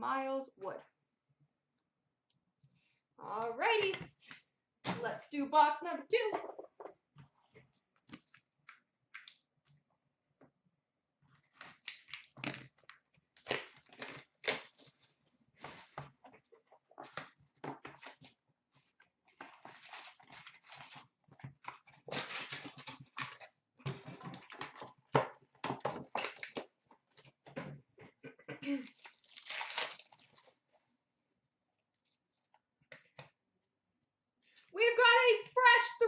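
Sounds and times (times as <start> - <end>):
wrapping tearing and crinkling: 11.4 - 15.2, 19.3 - 23.6, 26.0 - 26.7, 28.8 - 30.6.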